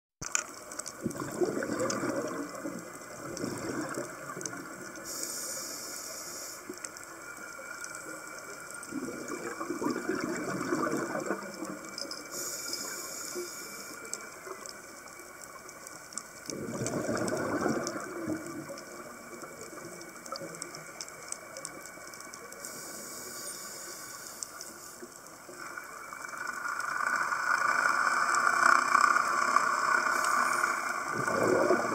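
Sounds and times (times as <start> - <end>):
exhaled bubbles underwater: 0.8 - 5.5, 7.4 - 13.3, 16.4 - 22.9, 30.1 - 31.9
regulator inhalation hiss: 5.0 - 7.0, 12.3 - 14.4, 22.6 - 25.0.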